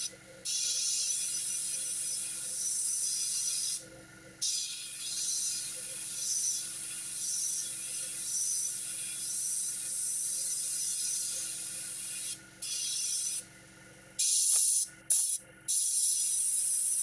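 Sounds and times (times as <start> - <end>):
airbrush hissing: 14.2 - 17.0.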